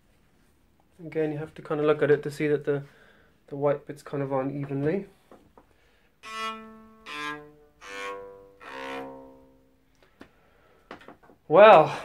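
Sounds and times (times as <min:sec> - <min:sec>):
electric cello open strings: 0:06.2 - 0:09.8.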